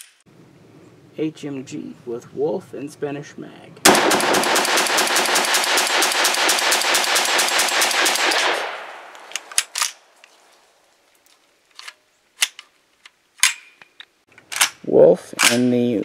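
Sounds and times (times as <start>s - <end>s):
rifle fired rapidly: 3.8s - 9.1s
sharp clicks: 3.8s - 10.0s.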